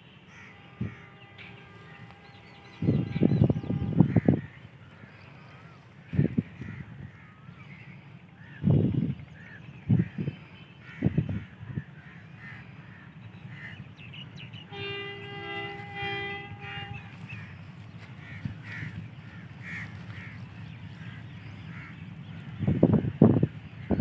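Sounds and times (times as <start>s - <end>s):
birds chirping faintly: 0.0s - 24.0s
locomotive horn blasts: 0.2s - 4.5s, 14.6s - 20.4s
wind gusts on microphone: 1.8s - 4.9s, 5.6s - 7.6s, 8.3s - 12.2s, 14.7s - 24.0s.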